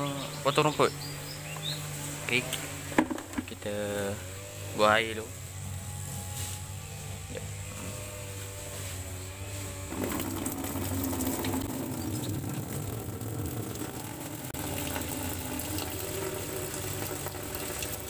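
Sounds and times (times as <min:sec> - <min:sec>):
grass cutter engine buzzing: 0:00.0 - 0:18.0
water splashing into plastic tub: 0:09.9 - 0:18.0.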